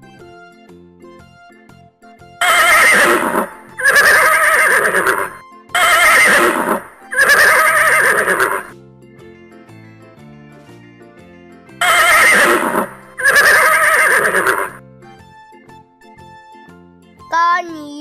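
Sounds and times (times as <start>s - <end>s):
soft background music: 0.0s - 18.0s
horse whinnying: 2.4s - 8.7s, 11.8s - 14.8s.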